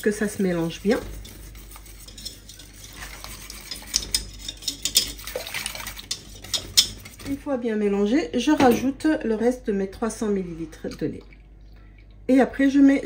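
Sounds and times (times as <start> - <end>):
whisk swishing in liquid: 0.0 - 7.4
whisk wires clicking against pan: 0.0 - 7.4.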